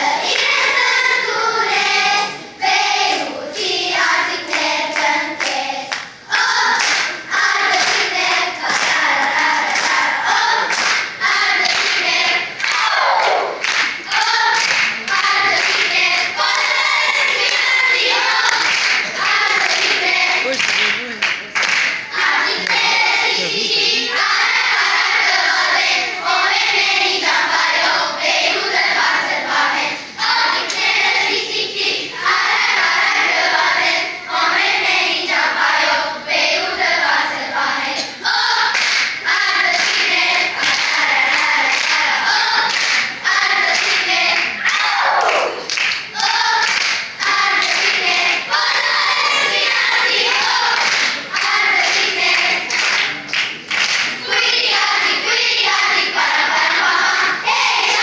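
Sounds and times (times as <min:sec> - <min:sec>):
children singing together: 0:00.0 - 0:20.9, 0:21.7 - 0:58.0
hand claps: 0:06.8 - 0:10.0, 0:10.7 - 0:12.0, 0:12.6 - 0:16.7, 0:18.4 - 0:22.0, 0:38.7 - 0:39.2, 0:42.6 - 0:43.1, 0:43.7 - 0:48.0, 0:50.3 - 0:54.2.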